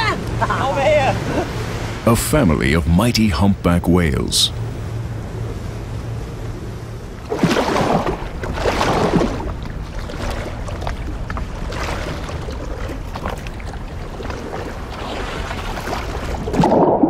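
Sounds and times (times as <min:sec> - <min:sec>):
wind and water rushing: 0:00.0 - 0:17.0
paddles splashing in water: 0:07.1 - 0:17.0.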